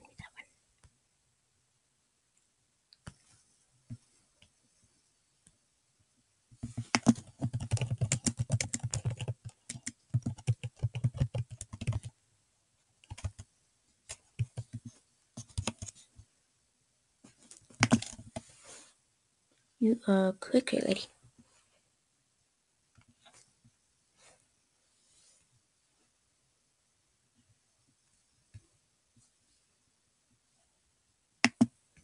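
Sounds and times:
keyboard typing: 6.6s - 12.1s, 13.0s - 13.5s, 14.1s - 16.0s, 17.7s - 18.4s, 31.4s - 31.7s.

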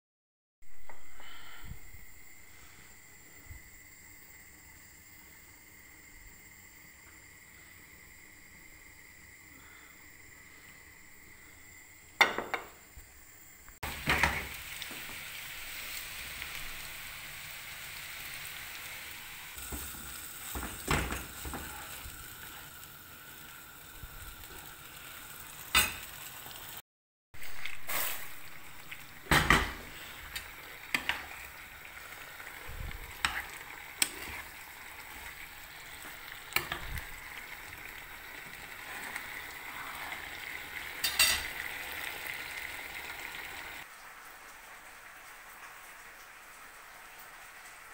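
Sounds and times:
sauce sizzling in frying pan: 2.0s - 26.8s, 27.4s - 47.9s.

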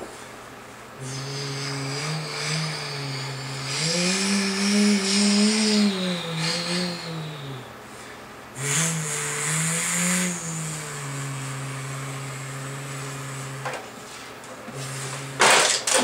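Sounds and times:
man imitating truck engine: 1.0s - 7.8s, 8.6s - 13.8s, 14.7s - 16.0s.

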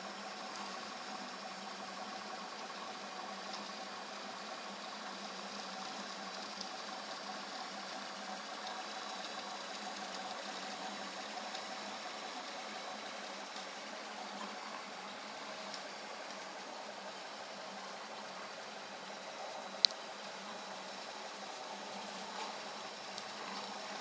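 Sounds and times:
faint clicks: 19.5s - 20.0s.

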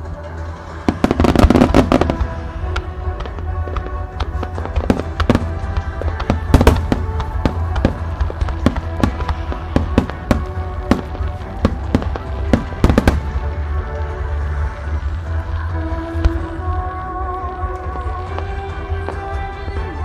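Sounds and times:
music over loudspeakers: 0.0s - 20.0s
fireworks bursting with bangs: 0.4s - 20.0s.

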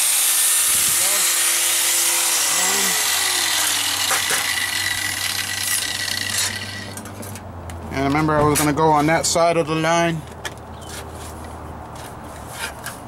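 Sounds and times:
angle grinder winding down: 0.0s - 7.0s.

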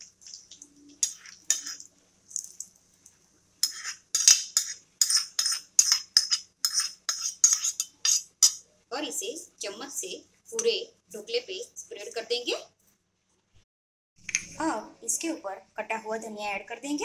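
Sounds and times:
steel spoon scraping metal pan: 1.0s - 1.8s, 3.6s - 8.6s.

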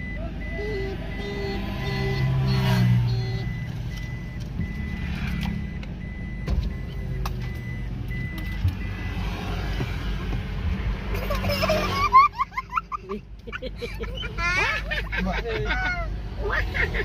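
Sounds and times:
high electronic beep: 0.0s - 10.2s
car engine running: 0.0s - 17.0s.

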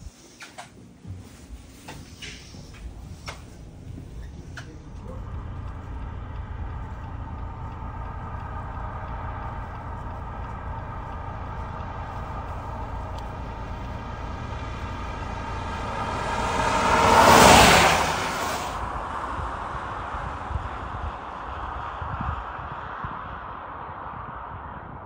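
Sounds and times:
car engine and road rumble: 0.0s - 25.0s
vehicle passing rush: 1.4s - 25.0s.

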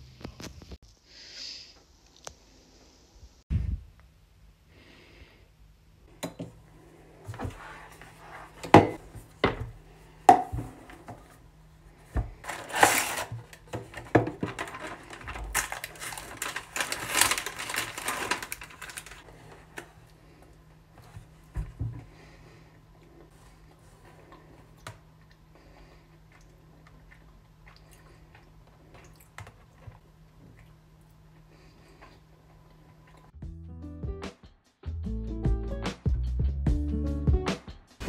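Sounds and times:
plastic wrapping crinkling: 12.4s - 20.0s.

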